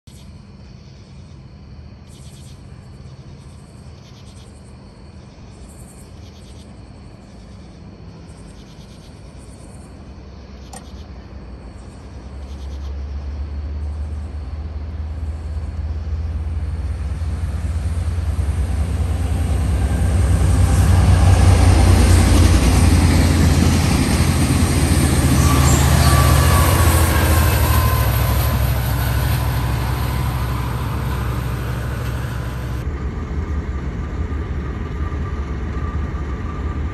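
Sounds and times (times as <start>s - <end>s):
crickets chirping: 0.1s - 32.9s
diesel train passing: 0.1s - 36.9s
wheels on rails: 12.4s - 32.9s.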